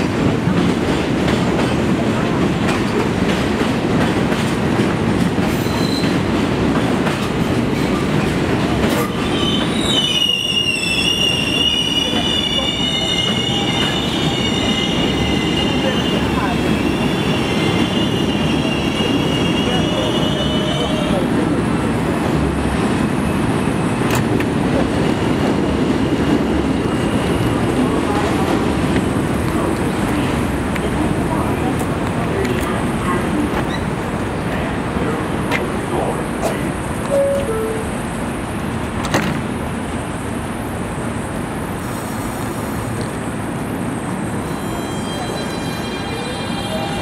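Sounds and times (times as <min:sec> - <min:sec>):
subway train rumbling: 0:00.0 - 0:47.0
train doors opening click: 0:24.0 - 0:24.6, 0:38.8 - 0:39.6.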